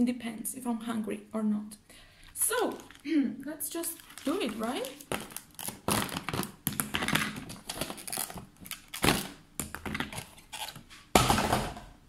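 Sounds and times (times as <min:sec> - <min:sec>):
plastic bag crinkling: 0:02.3 - 0:03.1, 0:03.7 - 0:10.9.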